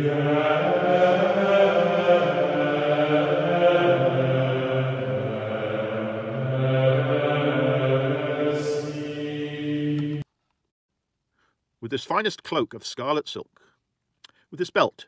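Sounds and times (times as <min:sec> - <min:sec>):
voices chanting long notes: 0:00.0 - 0:10.2.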